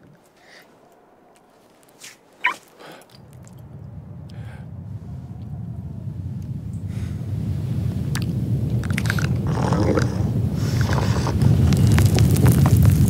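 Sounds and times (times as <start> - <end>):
low rumble: 3.0 - 13.0.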